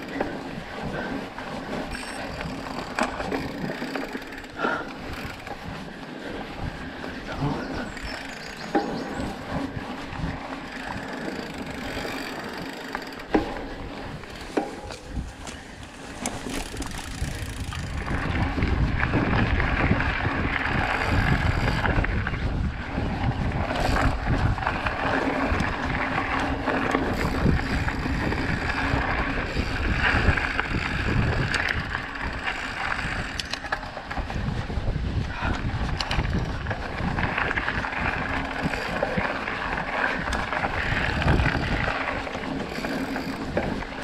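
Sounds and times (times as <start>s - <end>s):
bike clicks and rattles: 0.0s - 44.0s
tyres rolling over dirt: 0.0s - 44.0s
wind rumbling on microphone: 0.0s - 44.0s.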